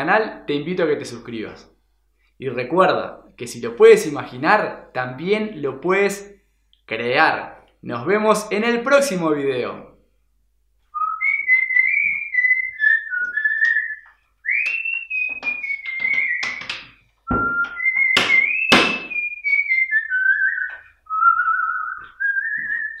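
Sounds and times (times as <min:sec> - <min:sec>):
person whistling a tune: 0:11.0 - 0:23.0
sharp knocks: 0:14.7 - 0:19.2.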